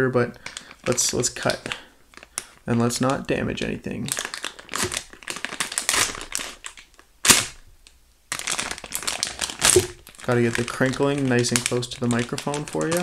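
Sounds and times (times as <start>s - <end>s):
plastic bag crinkling: 0.4s - 7.7s, 8.3s - 13.0s.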